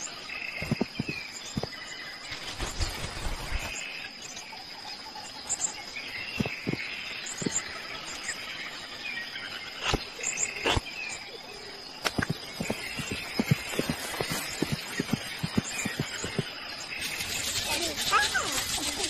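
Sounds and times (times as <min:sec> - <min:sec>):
birds chirping: 0:00.0 - 0:19.0
high insect drone: 0:00.0 - 0:19.0.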